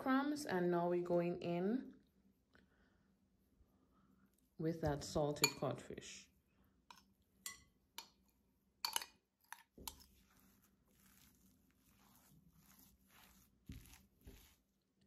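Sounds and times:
metal spoon clinking glass bowl: 0:05.4 - 0:05.8, 0:06.9 - 0:10.1
spoon scraping and squishing food: 0:06.8 - 0:15.0.

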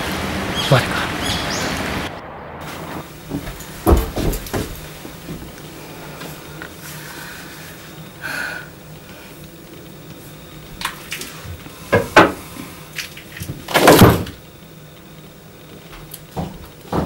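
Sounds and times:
wooden knocks: 0:16.4 - 0:17.0.

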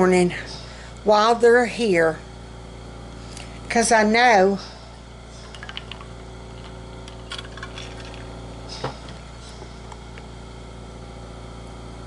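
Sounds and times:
steady low hum: 0:00.0 - 0:12.0
metal water bottle clinking: 0:05.5 - 0:08.9.

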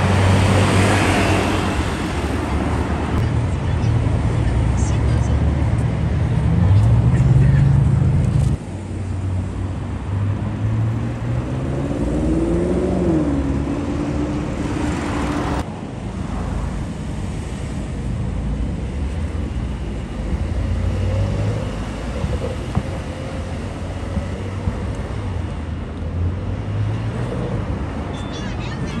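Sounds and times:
road traffic: 0:00.0 - 0:29.0
car engine revving: 0:10.0 - 0:15.6.

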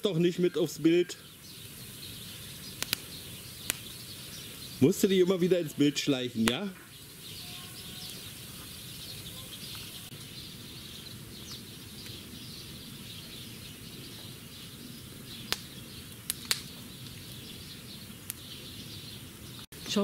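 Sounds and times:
fire hissing: 0:00.0 - 0:20.0
small birds twittering: 0:00.0 - 0:20.0
wood fire crackling pops: 0:01.5 - 0:05.4, 0:06.0 - 0:07.4, 0:11.1 - 0:12.6, 0:15.0 - 0:18.6.

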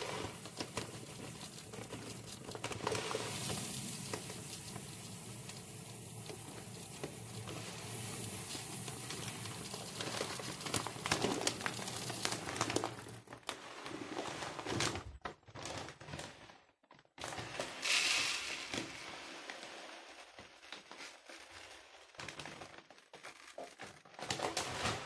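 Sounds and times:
water pouring and splashing: 0:00.0 - 0:13.3
plastic crinkling: 0:00.0 - 0:17.6, 0:19.7 - 0:25.0.

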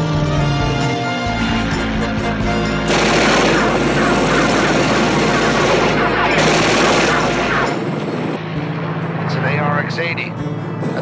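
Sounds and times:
helicopter drone: 0:00.0 - 0:11.0
machine-gun fire: 0:02.9 - 0:07.9.

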